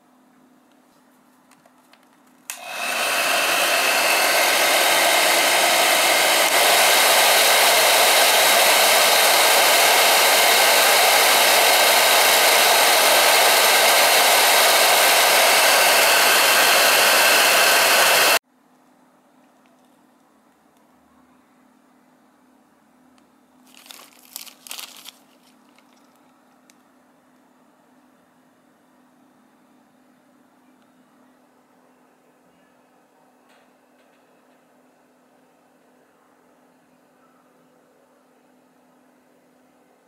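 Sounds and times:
hair dryer switch click: 2.5 - 7.1
hair dryer blowing air: 2.5 - 18.4.

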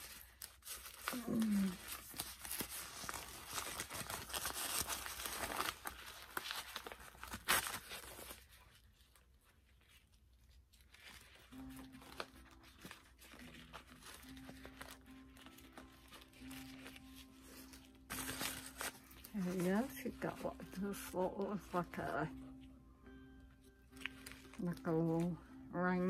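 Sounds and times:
plastic packaging crinkling: 0.0 - 22.6, 23.9 - 26.0.

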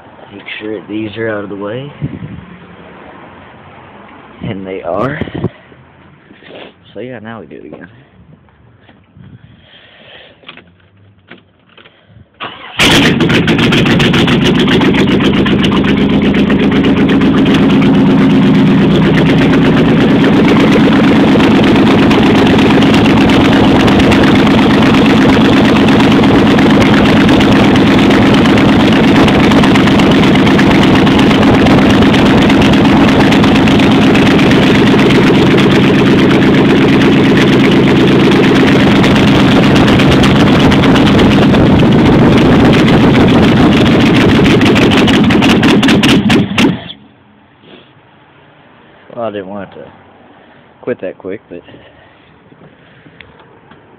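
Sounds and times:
v-eight engine starting and running: 12.4 - 47.0.

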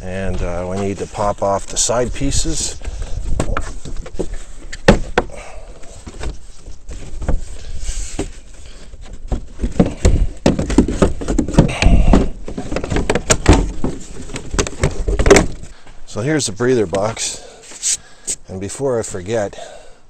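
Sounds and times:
plastic panels clicking and knocking: 9.0 - 15.7.

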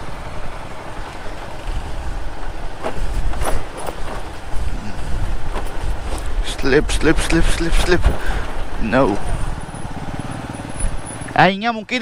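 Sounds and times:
motorcycle engine rumble: 0.0 - 12.0
motorcycle knocking and rattling: 2.3 - 6.6, 7.8 - 11.7.

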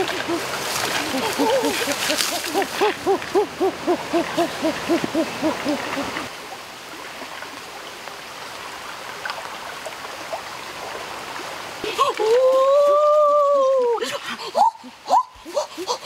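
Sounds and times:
running water rushing: 0.0 - 16.0
rapid low hooting calls: 0.1 - 6.3.

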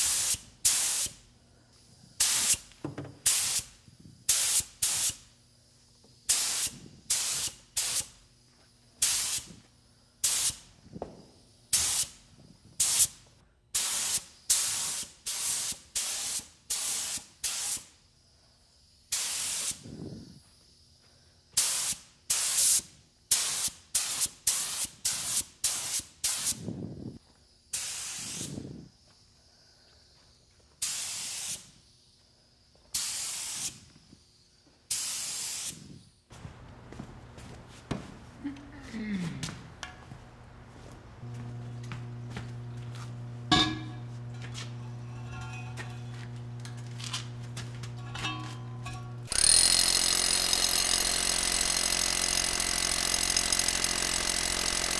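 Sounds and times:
paint spray gun hissing: 0.0 - 1.2, 2.2 - 5.2, 6.3 - 8.2, 9.0 - 9.5, 10.2 - 10.6, 11.7 - 12.2, 12.8 - 13.2, 13.8 - 17.9, 19.1 - 19.8, 21.6 - 26.6, 27.8 - 28.5, 30.8 - 31.7, 33.0 - 33.8, 34.9 - 35.8.

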